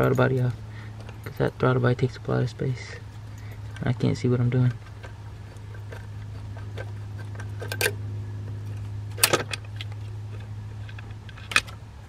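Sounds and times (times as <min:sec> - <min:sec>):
metal tools clinking: 0:00.0 - 0:02.1, 0:02.8 - 0:08.0
steady low hum: 0:00.0 - 0:12.0.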